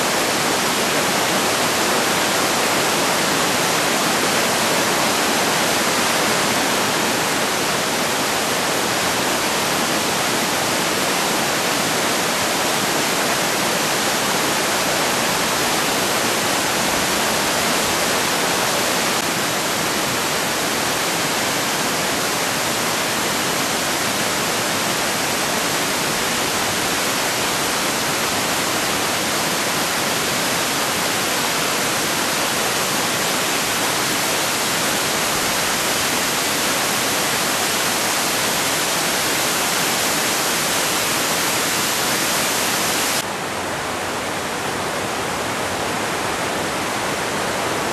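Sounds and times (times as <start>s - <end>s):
waterfall rushing: 0.0s - 47.9s.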